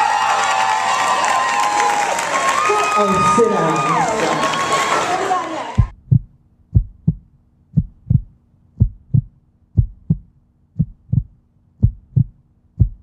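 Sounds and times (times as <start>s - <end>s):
heartbeat thumps: 5.8s - 13.0s.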